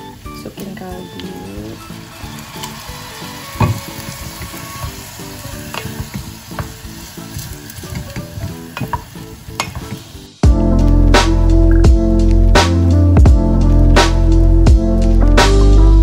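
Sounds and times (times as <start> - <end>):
food sizzling in a saucepan: 0.0 - 15.9
loud music: 10.2 - 16.0.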